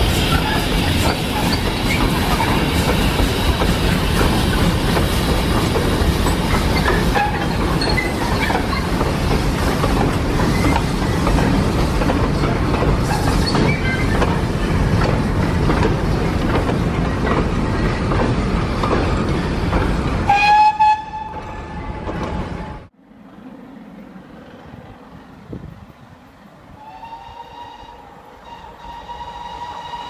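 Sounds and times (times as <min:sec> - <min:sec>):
train wheels rattling: 0:00.0 - 0:22.9
train whistle: 0:20.3 - 0:21.9, 0:26.8 - 0:30.0.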